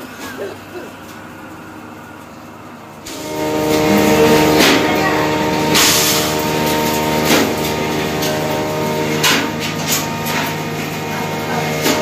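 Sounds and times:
rushing noise bursts: 3.0 - 12.0
vehicle engine droning: 3.0 - 12.0.

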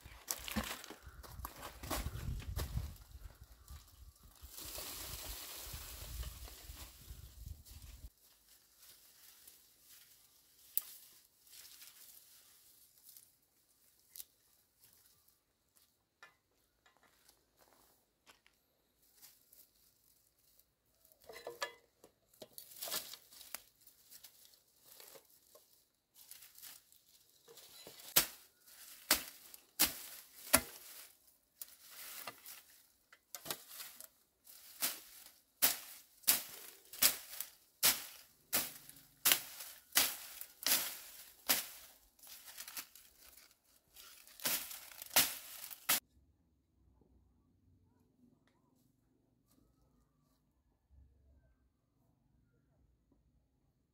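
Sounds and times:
footsteps in dry grass: 0.0 - 16.0, 16.6 - 21.2, 22.5 - 46.0
dry stalks crackling: 0.0 - 46.0
hoe chopping into brush and soil: 27.6 - 32.7, 34.6 - 43.0, 44.1 - 46.0.

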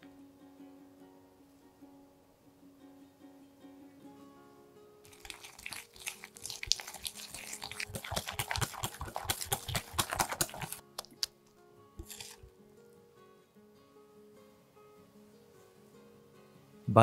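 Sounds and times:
whisk beating cream in glass bowl: 5.1 - 10.8, 12.0 - 12.5.

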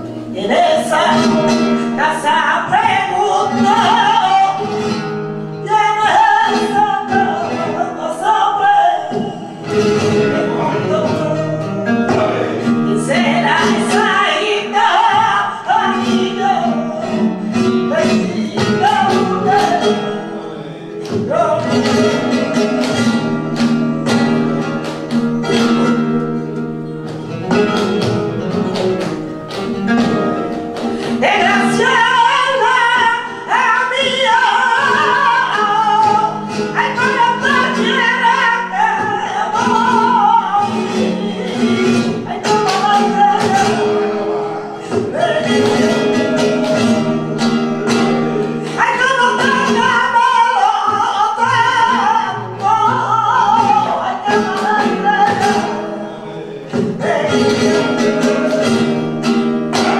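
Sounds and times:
woman singing: 0.0 - 26.4, 29.9 - 59.9
flamenco guitar: 0.0 - 59.9
rhythmic hand clapping: 21.0 - 56.0, 56.6 - 59.9.

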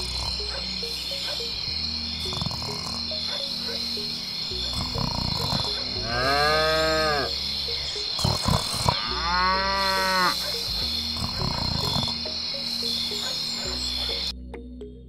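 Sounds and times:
chirping insects: 0.0 - 15.0
cow mooing: 5.6 - 7.3, 8.8 - 10.6.

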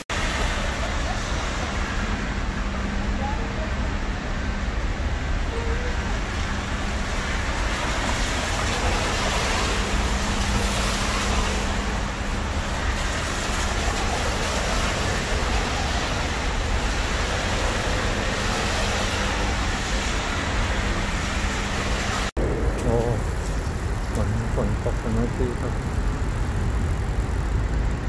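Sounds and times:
car tyres on wet asphalt: 0.1 - 28.0
rain falling: 6.6 - 28.0.

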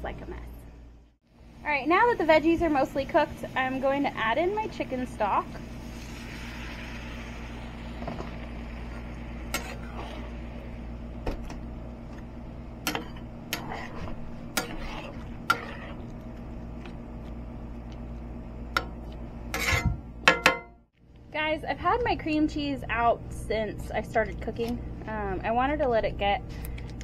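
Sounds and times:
low hum: 0.0 - 27.0
utensil stirring in a skillet: 5.7 - 10.8, 12.9 - 17.0
utensil scraping pan: 9.5 - 10.5, 12.9 - 16.2, 19.5 - 20.0.

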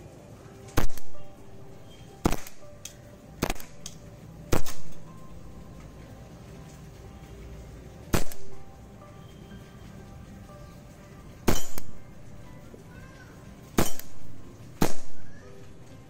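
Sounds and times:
bb pistol shots: 0.8 - 1.2, 2.2 - 5.0, 8.1 - 8.5, 11.5 - 12.0, 13.8 - 15.3.

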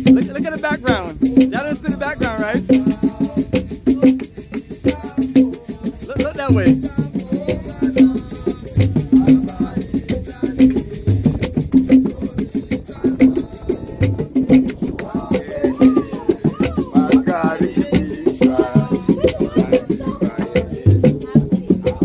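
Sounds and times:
fast rattling percussion: 0.0 - 22.0.

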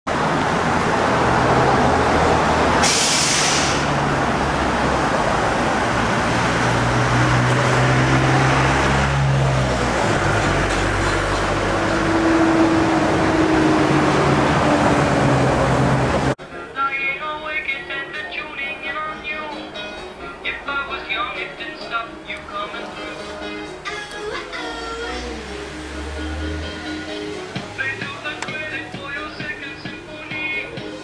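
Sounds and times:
heavy vehicle engines running: 0.1 - 16.7, 20.0 - 31.0
short hiss: 2.8 - 3.9.

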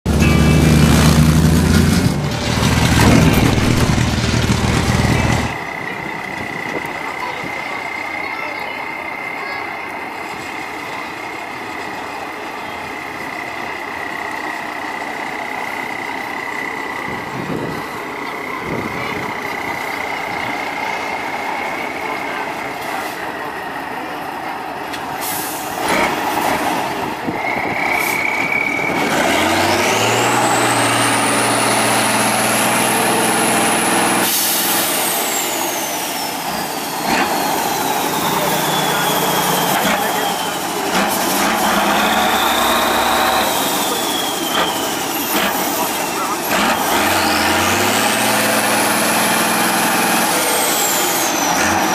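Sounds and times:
truck diesel engine whining: 0.0 - 51.9
thin whistle: 27.4 - 29.0, 37.9 - 40.7, 42.0 - 46.0.

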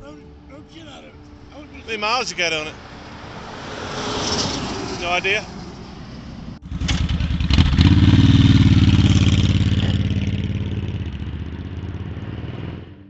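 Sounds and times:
motorcycle engine pulling away: 2.8 - 13.0.

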